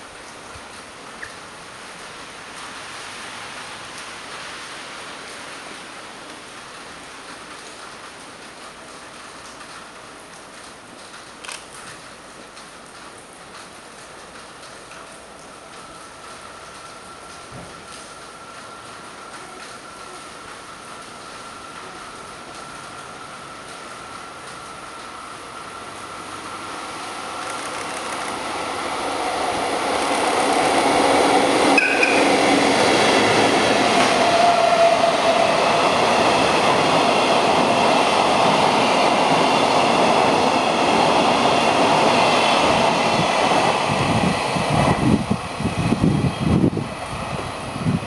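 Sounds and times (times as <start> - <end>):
freight train rumble and clatter: 3.6 - 48.0
high ringing from train wheels: 26.9 - 44.6
wind buffeting microphone: 28.3 - 48.0.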